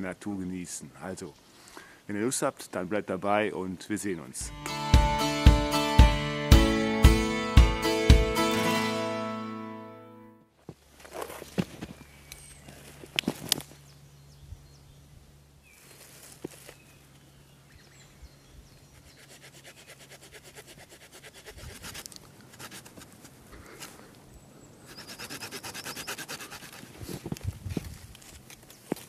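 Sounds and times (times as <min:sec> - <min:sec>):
twigs rustling and snapping: 0:11.0 - 0:13.8, 0:15.9 - 0:17.3, 0:22.0 - 0:24.2, 0:27.1 - 0:29.0
knife cutting wood: 0:19.0 - 0:24.1, 0:24.9 - 0:27.5.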